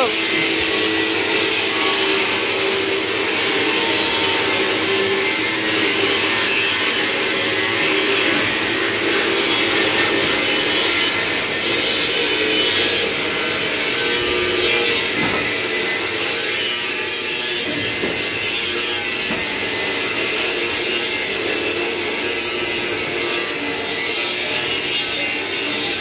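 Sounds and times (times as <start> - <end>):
electric blower rushing air: 0.0 - 26.0.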